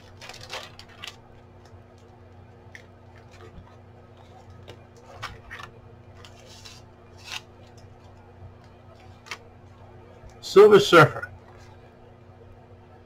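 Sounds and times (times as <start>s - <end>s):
paper and plastic rustling: 0.0s - 8.2s
low steady hum: 0.0s - 13.0s.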